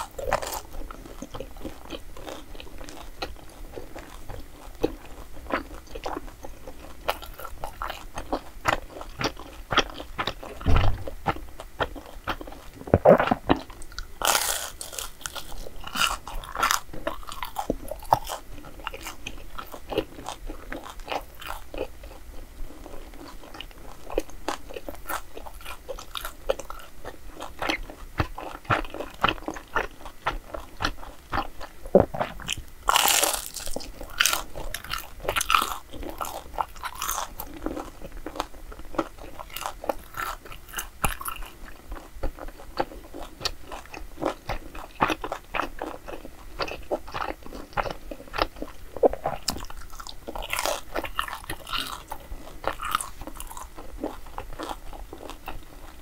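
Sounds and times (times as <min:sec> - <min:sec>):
person chewing crunchy food: 0:00.0 - 0:56.0
loud crunching: 0:32.0 - 0:37.2.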